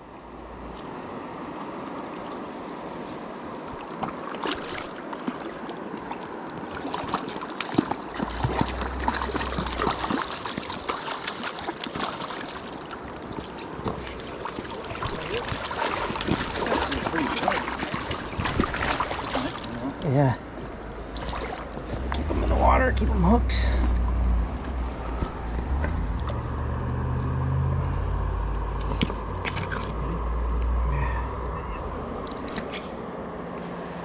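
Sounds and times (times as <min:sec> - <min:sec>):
wading footsteps on cobbles: 0:03.9 - 0:19.8
water rushing over gravel: 0:04.0 - 0:20.3, 0:21.0 - 0:27.5.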